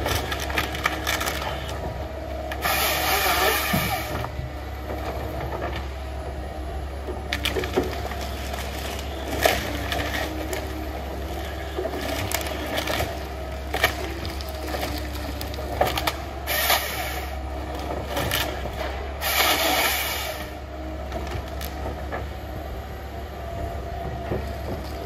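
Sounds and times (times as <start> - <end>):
wood cracking and snapping: 0.0 - 1.8, 7.3 - 10.8, 11.4 - 20.0
diesel engine running: 0.0 - 25.0.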